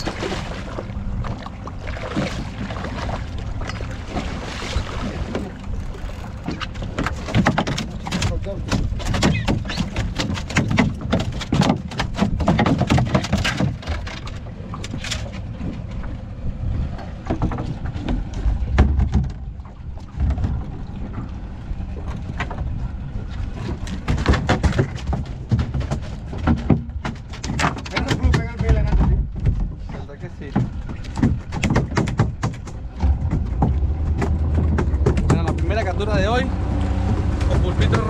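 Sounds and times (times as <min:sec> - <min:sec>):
steady low rumble: 0:00.0 - 0:07.3, 0:14.2 - 0:38.0
fish slapping on boat floor: 0:06.4 - 0:15.4, 0:23.6 - 0:35.8.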